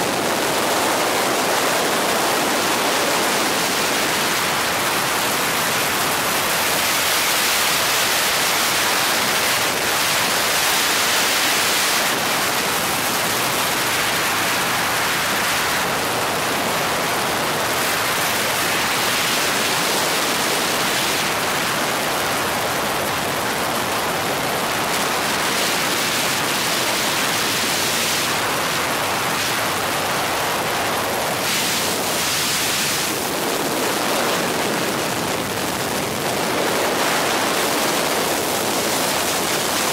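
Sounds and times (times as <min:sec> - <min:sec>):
helicopter cabin rushing noise: 0:09.0 - 0:39.9.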